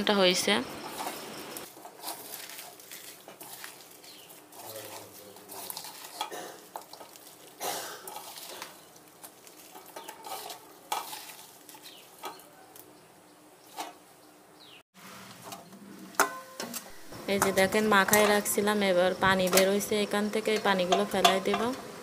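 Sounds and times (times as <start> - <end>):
wet rustling and squishing: 0.9 - 12.6.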